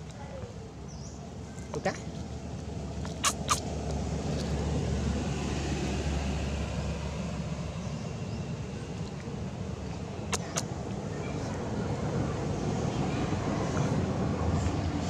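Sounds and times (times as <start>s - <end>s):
distant engine rumble: 0.0s - 15.0s
sharp clicks: 3.1s - 3.6s.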